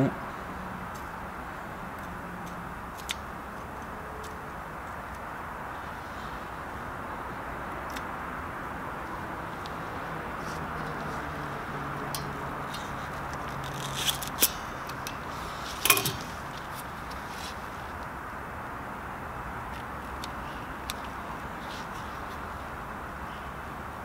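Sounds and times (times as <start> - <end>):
sharp metal clack: 15.8 - 16.4.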